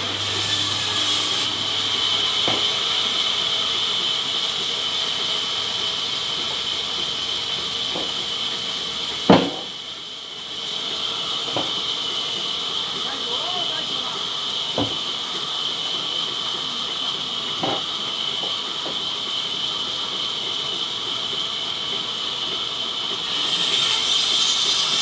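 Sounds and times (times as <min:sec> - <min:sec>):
band saw cutting log: 0:00.0 - 0:25.0.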